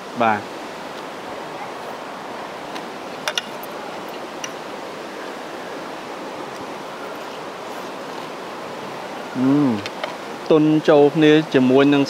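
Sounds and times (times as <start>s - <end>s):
stream water running: 0.0s - 12.0s.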